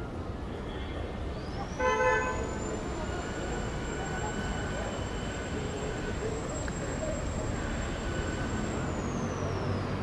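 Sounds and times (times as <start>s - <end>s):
road traffic rumble: 0.0s - 10.0s
vehicle horn toot: 1.8s - 2.4s
high-pitched whine: 2.4s - 10.0s.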